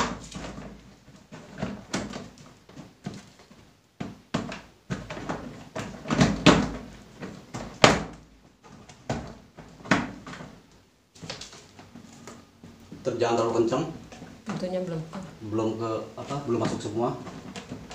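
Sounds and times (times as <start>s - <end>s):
plastic cabinet door clacking: 4.0s - 10.6s.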